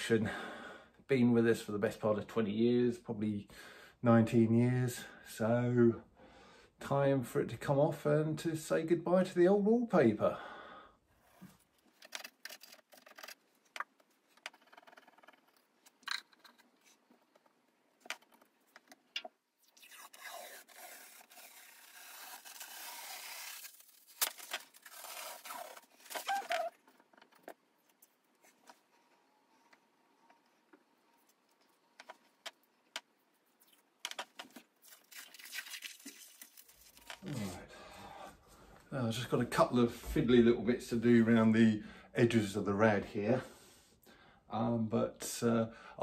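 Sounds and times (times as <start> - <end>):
paper tearing: 19.8 - 26.7
scraper scraping wallpaper: 19.9 - 26.7.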